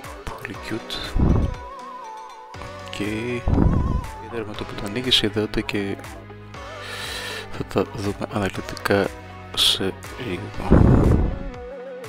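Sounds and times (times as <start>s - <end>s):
low thump: 1.2s - 1.6s, 3.4s - 4.1s, 10.6s - 11.6s.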